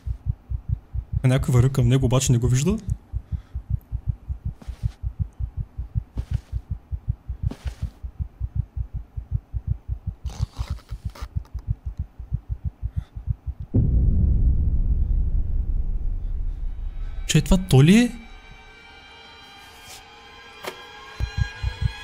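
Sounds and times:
low heartbeat-like pulse: 0:00.0 - 0:01.6, 0:02.8 - 0:18.6, 0:21.2 - 0:22.0
loud low rumble: 0:00.0 - 0:01.7, 0:11.7 - 0:19.1.

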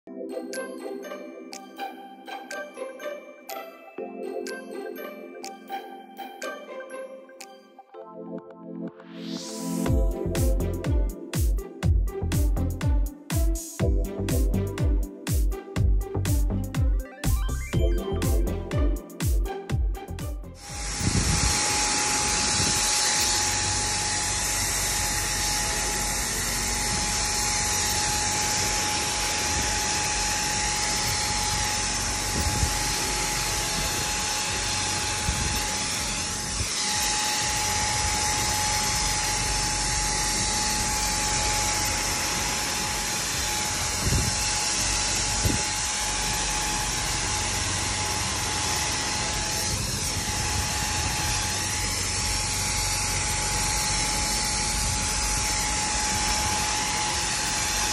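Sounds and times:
paint sprayer motor whine: 0:19.5 - 0:57.9
hiss of spray: 0:20.6 - 0:45.9.

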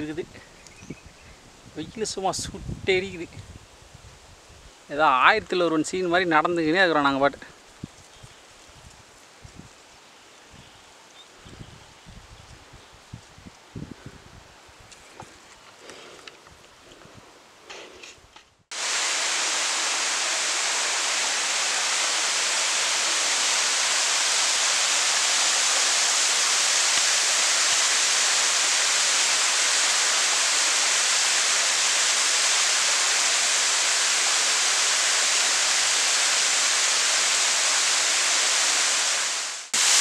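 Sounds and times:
waterfall splashing into pool: 0:18.7 - 0:40.0.

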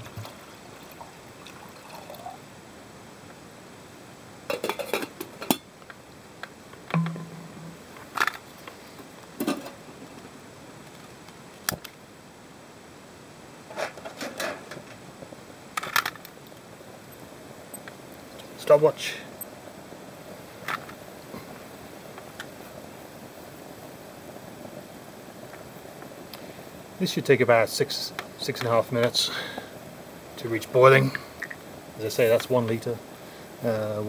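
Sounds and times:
metal cookware clinking: 0:06.9 - 0:08.0
pot set down on stand: 0:06.9 - 0:08.4.

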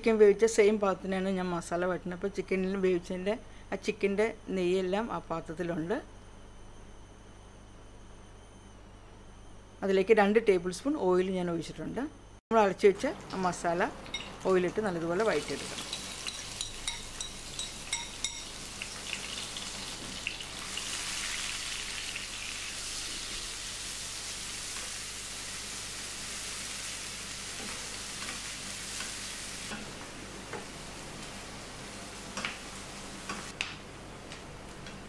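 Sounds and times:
masala sizzling in oil: 0:13.0 - 0:33.6.

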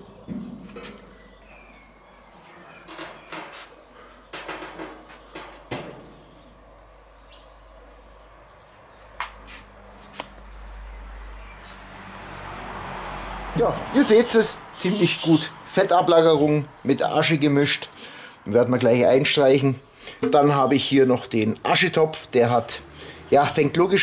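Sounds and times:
metal grill parts clicking: 0:02.2 - 0:03.7.

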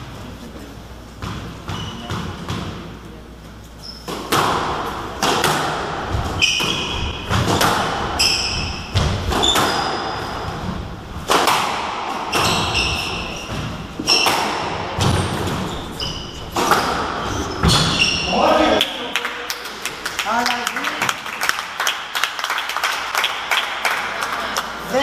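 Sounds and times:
squash ball hitting rackets and walls: 0:01.2 - 0:03.0, 0:03.9 - 0:18.6
shoes squeaking on wooden floor: 0:01.7 - 0:02.1, 0:03.7 - 0:04.2, 0:06.2 - 0:07.6, 0:12.2 - 0:18.4.

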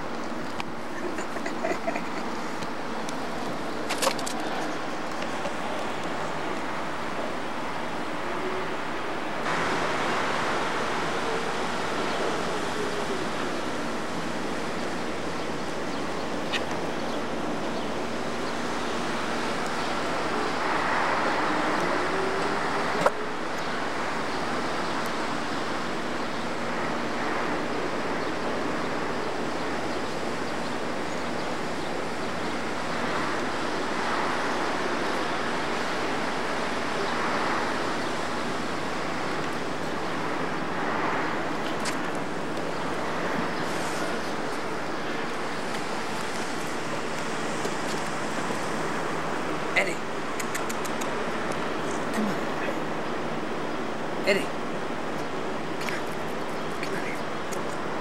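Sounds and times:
city traffic noise: 0:00.0 - 0:58.0
sharp click: 0:50.4 - 0:51.1.

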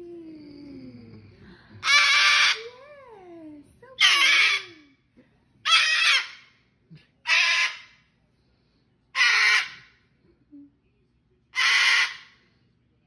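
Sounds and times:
cockatoo screeching: 0:01.8 - 0:02.7, 0:04.0 - 0:04.8, 0:05.7 - 0:06.4, 0:07.3 - 0:07.9, 0:09.2 - 0:09.9, 0:11.6 - 0:12.4.

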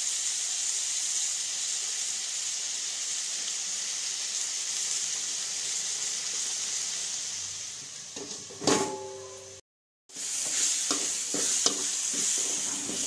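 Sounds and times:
vegetables sizzling in a pan: 0:00.0 - 0:13.0.

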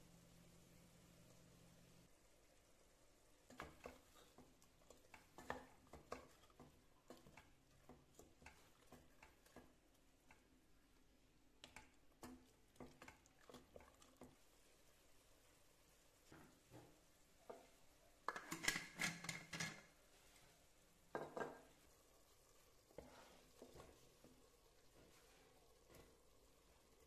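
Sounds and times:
spatula scraping a metal pot: 0:03.5 - 0:09.7.

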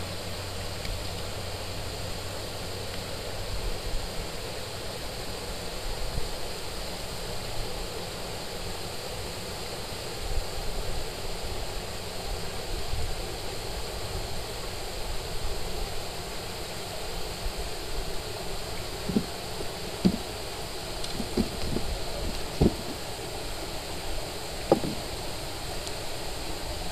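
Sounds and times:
wind and water rushing: 0:00.0 - 0:26.9
knocks on canoe hull: 0:19.1 - 0:19.3, 0:20.0 - 0:20.3, 0:21.1 - 0:23.0, 0:24.7 - 0:25.1.

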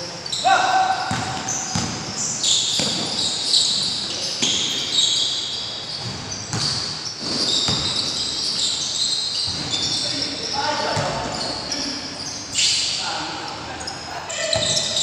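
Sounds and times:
sneakers squeaking on floor: 0:00.0 - 0:15.0
basketball bouncing: 0:01.0 - 0:02.1, 0:02.7 - 0:03.2, 0:05.9 - 0:08.2, 0:10.9 - 0:11.3.

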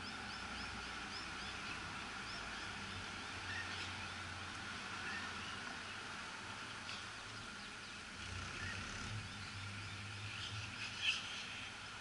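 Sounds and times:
cars moving slowly: 0:00.0 - 0:12.0
birds chirping: 0:05.0 - 0:12.0.

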